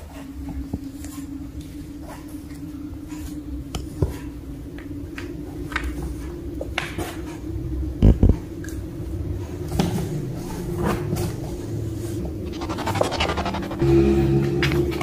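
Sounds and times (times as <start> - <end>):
steady hum: 11.5 - 15.0.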